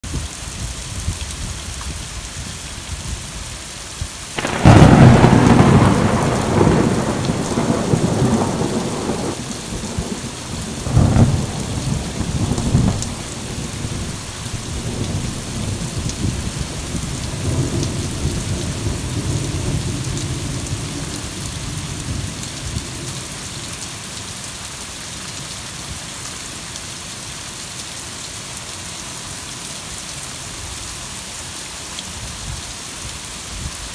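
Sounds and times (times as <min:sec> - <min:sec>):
heavy rain pouring: 0:00.0 - 0:33.9
thunderclap rumbling: 0:04.4 - 0:23.0.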